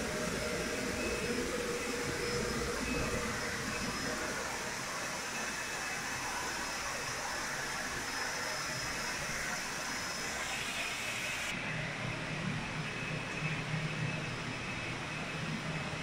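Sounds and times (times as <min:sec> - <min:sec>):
low machinery hum: 0:00.0 - 0:10.8.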